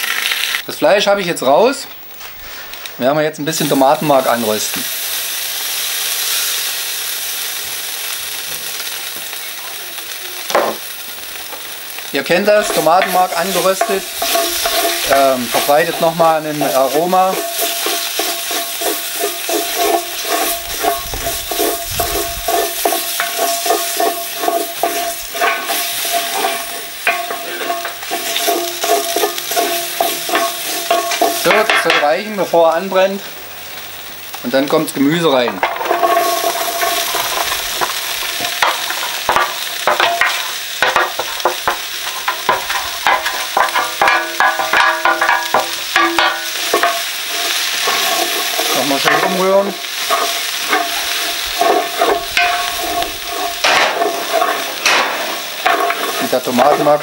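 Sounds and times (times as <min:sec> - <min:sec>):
tomato paste sizzling in a pot: 0:00.0 - 0:57.0
wooden spoon scraping pot: 0:12.2 - 0:32.0, 0:35.5 - 0:57.0
metallic ringing tones: 0:12.5 - 0:32.0, 0:50.0 - 0:56.8.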